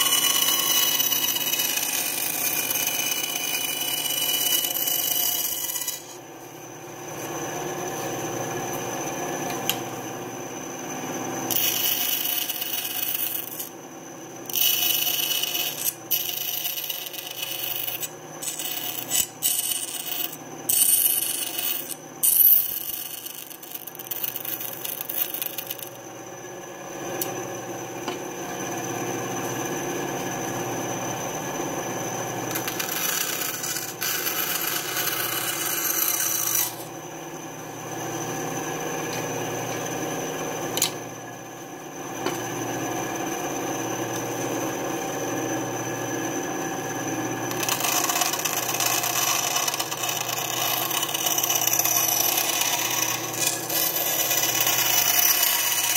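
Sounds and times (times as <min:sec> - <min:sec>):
bandsaw blade cutting plywood: 0:00.0 - 0:06.2, 0:11.5 - 0:13.7, 0:14.5 - 0:26.0, 0:32.5 - 0:36.9, 0:47.5 - 0:55.9
bandsaw motor hum: 0:00.0 - 0:55.9.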